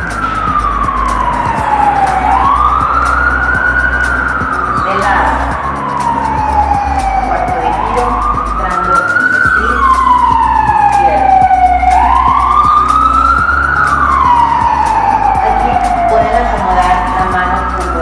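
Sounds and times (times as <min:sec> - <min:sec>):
low bass: 0:00.0 - 0:18.0
siren wailing: 0:00.0 - 0:18.0.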